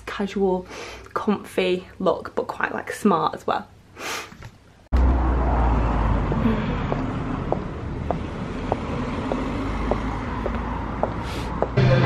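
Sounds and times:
low rumble of street noise: 0:04.8 - 0:12.0
footsteps on paving slabs: 0:06.9 - 0:11.8.

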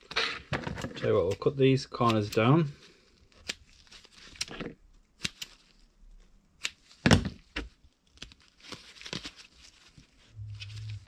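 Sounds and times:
scissors snipping foam sponge: 0:03.4 - 0:04.6, 0:05.2 - 0:05.6, 0:06.6 - 0:08.4.

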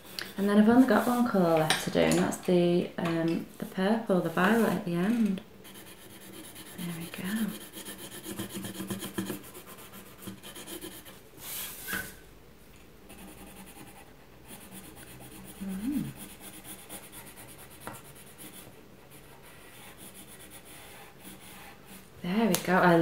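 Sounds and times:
pencil scratching on paper: 0:00.1 - 0:01.4, 0:03.7 - 0:11.2, 0:13.1 - 0:22.1.

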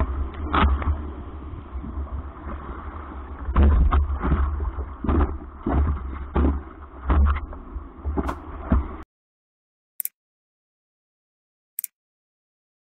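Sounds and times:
surf churning against paddleboard: 0:00.0 - 0:09.0
water splashes: 0:00.0 - 0:09.0
wind rumble on microphone: 0:00.0 - 0:09.0.

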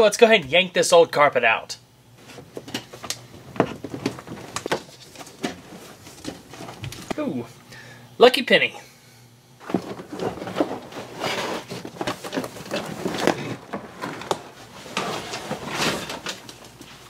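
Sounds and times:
carpet rustling and scraping on metal: 0:02.2 - 0:07.1, 0:09.6 - 0:17.0.

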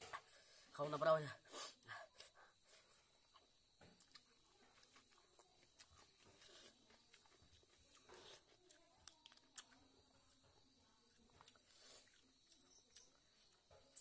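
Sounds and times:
person chewing: 0:02.2 - 0:10.0, 0:11.1 - 0:14.0.

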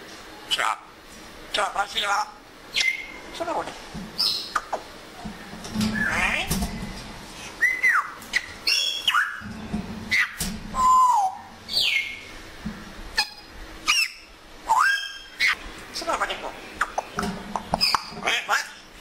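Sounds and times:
parrot whistling: 0:07.6 - 0:09.4, 0:10.1 - 0:12.2, 0:13.2 - 0:15.6.

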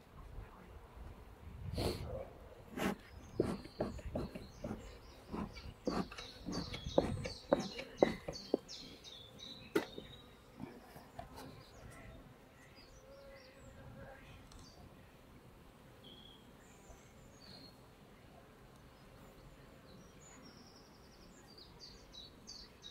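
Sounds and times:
bellows puffs: 0:01.8 - 0:08.1
birds chirping faintly: 0:02.5 - 0:15.2.

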